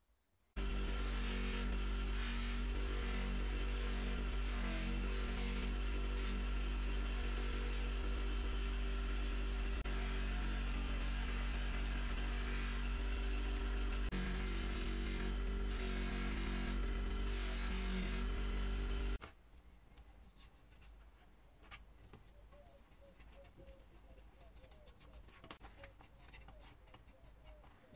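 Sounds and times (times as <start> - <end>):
electric grinder motor hum: 0.6 - 19.2.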